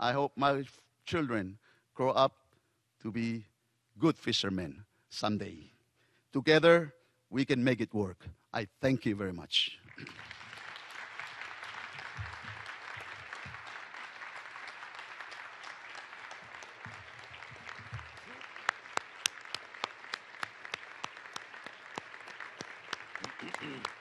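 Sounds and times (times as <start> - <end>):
audience applauding: 9.9 - 24.0.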